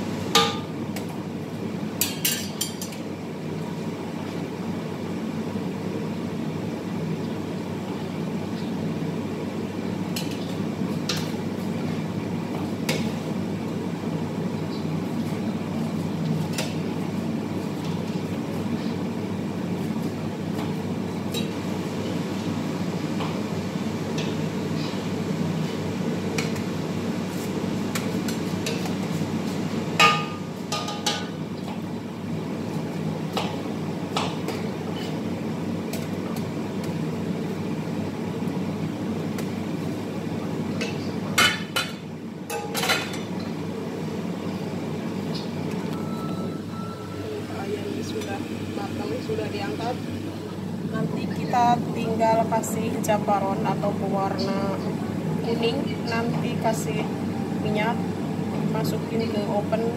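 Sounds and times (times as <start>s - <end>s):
low stove rumble: 0.0s - 59.9s.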